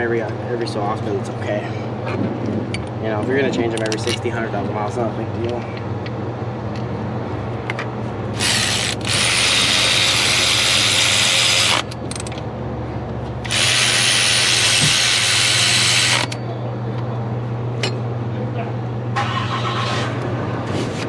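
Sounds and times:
power ratchet running: 8.3s - 12.3s, 13.4s - 16.4s.

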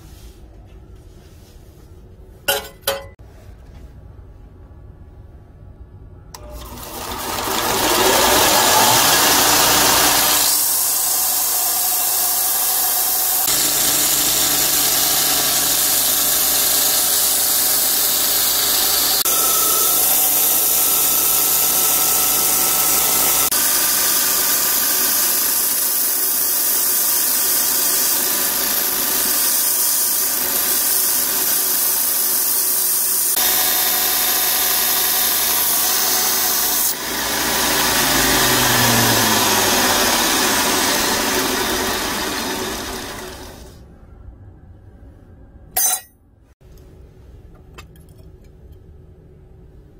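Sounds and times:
motor hum: 6.4s - 25.1s, 33.4s - 43.8s
belt grinder grinding hiss: 6.5s - 43.8s.

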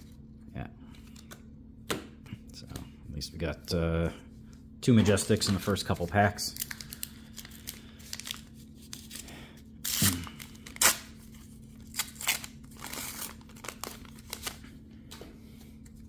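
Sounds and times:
wrapper crinkling: 5.7s - 9.2s, 11.8s - 14.6s
foil wrapper ripping: 6.5s - 11.2s, 11.8s - 14.6s.

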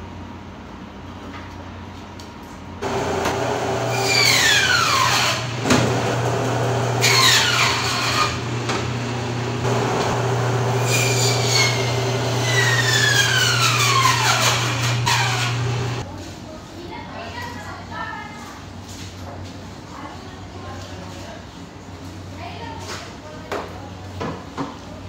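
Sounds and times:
band saw humming: 2.8s - 16.0s.

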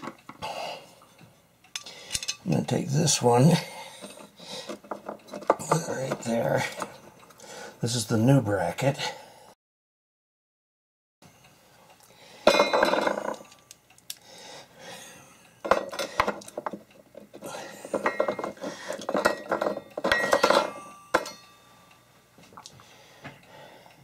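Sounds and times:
metal bracket and screws rattling: 4.0s - 6.8s, 15.7s - 21.4s.

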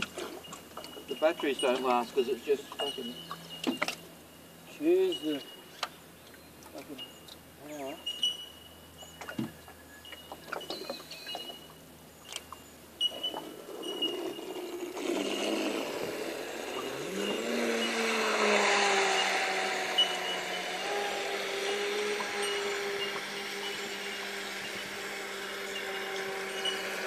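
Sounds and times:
toy boat motor hissing: 13.2s - 27.0s.

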